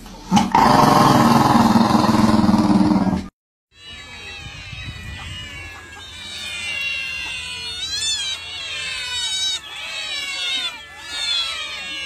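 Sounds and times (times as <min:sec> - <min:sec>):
cats and kittens meowing: 0:03.7 - 0:12.0.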